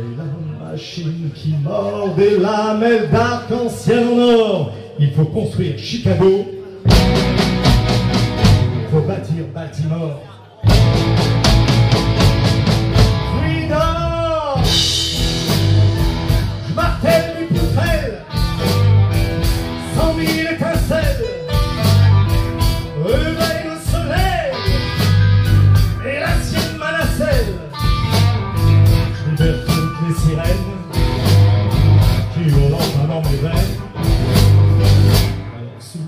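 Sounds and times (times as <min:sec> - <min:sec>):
bass: 0:00.0 - 0:36.0
electric guitar lead: 0:06.8 - 0:09.0, 0:10.6 - 0:35.9
drum beat: 0:06.9 - 0:08.9, 0:10.7 - 0:35.4.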